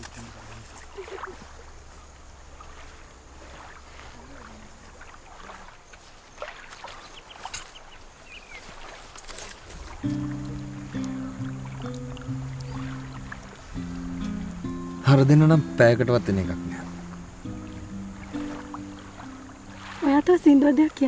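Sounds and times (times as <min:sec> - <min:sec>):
faint clicks and rustles: 0:08.6 - 0:10.1
soft music: 0:10.0 - 0:21.0.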